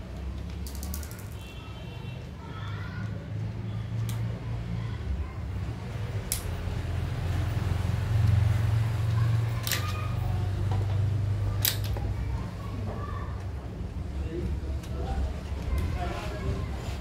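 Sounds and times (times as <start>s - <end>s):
small plastic and metal parts clicking: 0.2s - 1.6s, 11.6s - 12.0s.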